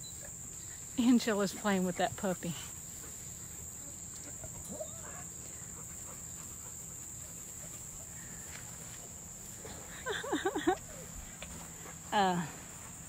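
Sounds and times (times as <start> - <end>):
crickets chirring: 0.0 - 13.0
faint puppy whine: 3.8 - 6.7.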